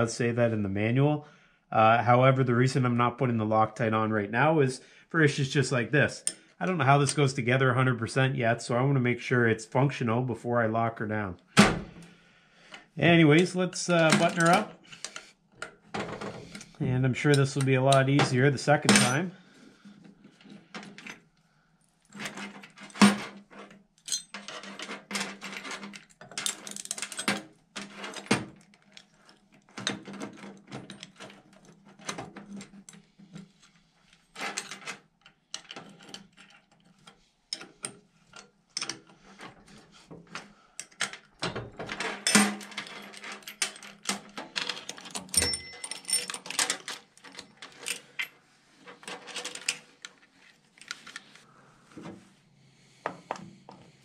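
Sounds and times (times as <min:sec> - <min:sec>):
metal chain parts clinking: 0:14.0 - 0:14.6, 0:24.0 - 0:28.2, 0:42.1 - 0:48.3.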